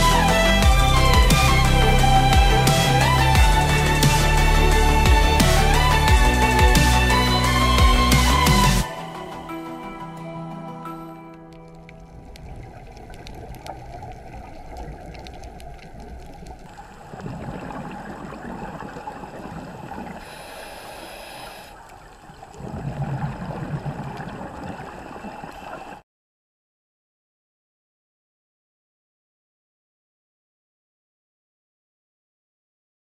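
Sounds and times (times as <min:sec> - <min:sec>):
music: 0:00.0 - 0:13.1
underwater rumble: 0:11.6 - 0:26.0
regulator bubbles gurgling: 0:11.7 - 0:26.0.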